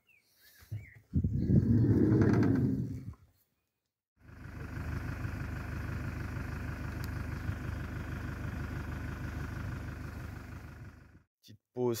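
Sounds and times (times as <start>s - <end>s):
vehicle engine idling: 4.2s - 11.3s.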